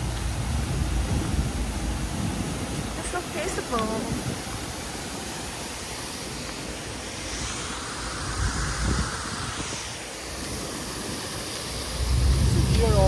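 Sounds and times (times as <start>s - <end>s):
steady hiss: 0.0s - 13.0s
low rumble: 11.8s - 13.0s.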